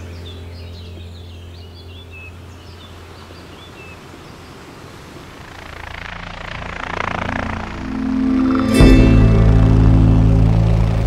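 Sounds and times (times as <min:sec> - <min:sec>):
low hum: 0:00.0 - 0:03.7, 0:04.9 - 0:11.0
birds chirping: 0:00.0 - 0:07.9
outdoor rushing ambience: 0:00.0 - 0:11.0.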